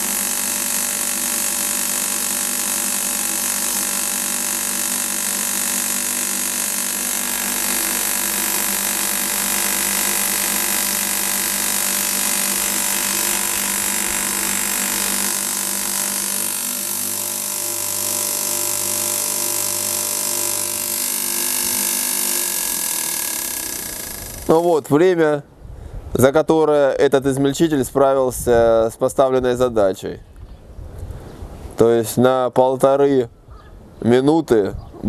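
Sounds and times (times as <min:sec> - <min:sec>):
grain grinder running: 0:00.0 - 0:24.8.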